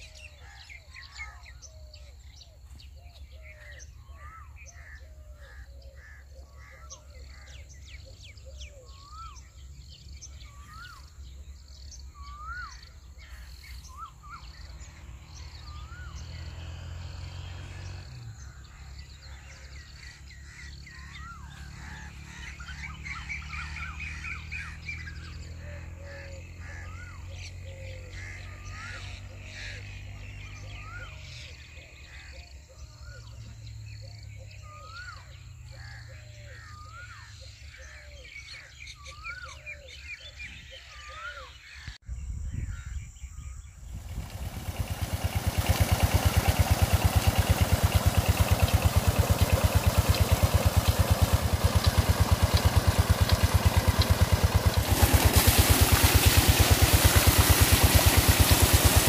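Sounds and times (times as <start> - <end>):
birds chirping: 0.0 - 59.0
low steady rumble: 42.2 - 59.0.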